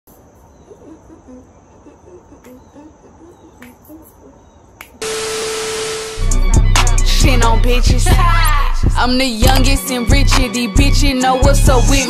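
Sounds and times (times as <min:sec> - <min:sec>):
burst of static hiss: 0:05.0 - 0:06.4
faint high whine: 0:05.0 - 0:06.4
steady hum tone: 0:05.0 - 0:06.6.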